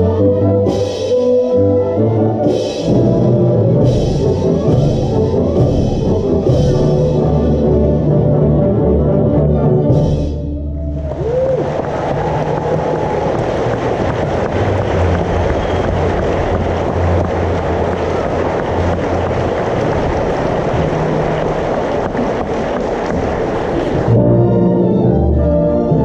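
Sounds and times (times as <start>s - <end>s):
orchestra playing: 0.0s - 26.0s
audience applauding: 10.8s - 24.2s.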